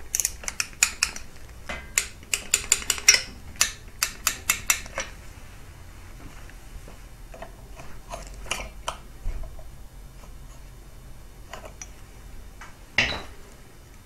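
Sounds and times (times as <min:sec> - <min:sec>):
hand ratchet clicking: 0:02.0 - 0:05.0.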